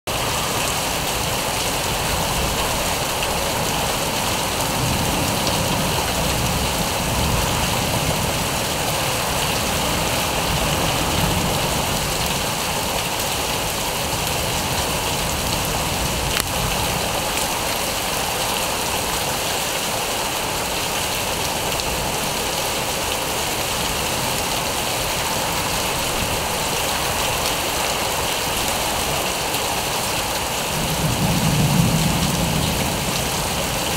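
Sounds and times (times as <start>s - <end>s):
heavy rain hissing: 0.1s - 33.9s
thunder rumble: 30.7s - 33.9s.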